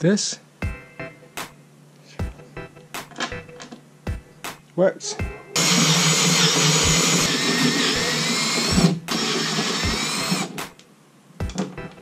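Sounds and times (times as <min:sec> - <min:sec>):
power drill whining under load: 0:05.6 - 0:10.6.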